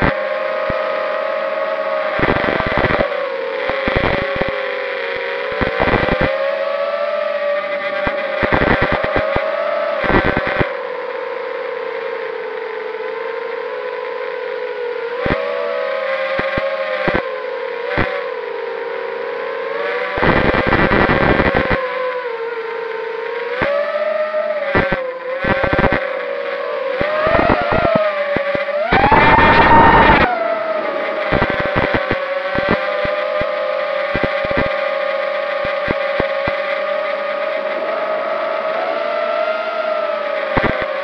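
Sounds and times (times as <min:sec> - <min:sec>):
quadcopter motors whining: 0:00.0 - 0:41.0
bursts of rushing noise: 0:26.9 - 0:41.0.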